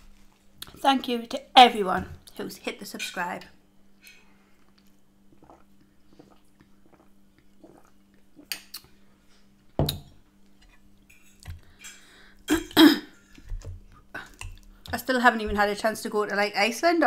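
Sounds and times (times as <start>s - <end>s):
faint steady hum: 0.0s - 17.0s
sipping and chewing: 4.7s - 9.0s.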